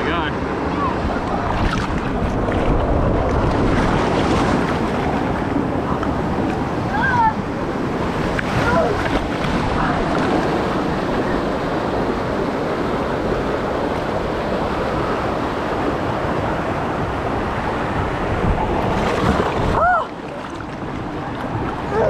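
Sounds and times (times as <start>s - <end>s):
water rushing and splashing: 0.0s - 22.0s
wind buffeting microphone: 0.4s - 22.0s.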